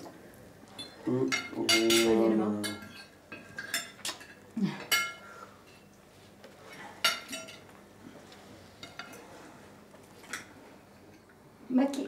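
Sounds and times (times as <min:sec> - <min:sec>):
cutlery clinking on plates: 0:00.7 - 0:05.9, 0:06.6 - 0:07.8, 0:08.8 - 0:09.3.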